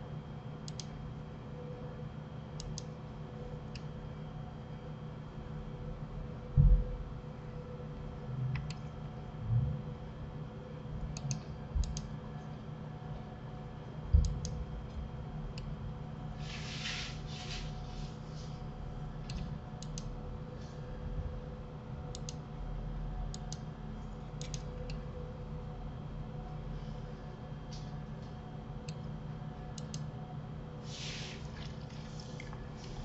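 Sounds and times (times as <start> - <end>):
steady low hum: 0.0 - 33.0
keyboard and mouse clicks: 0.7 - 0.9, 11.2 - 12.1, 24.4 - 25.0.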